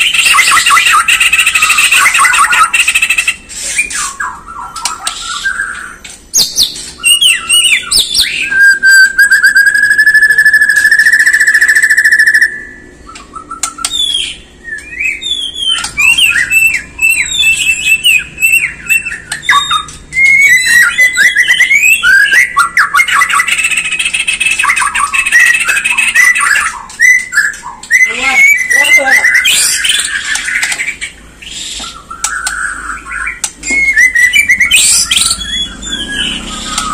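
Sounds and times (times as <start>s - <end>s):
bird singing trills and whistles: 0.0s - 36.9s.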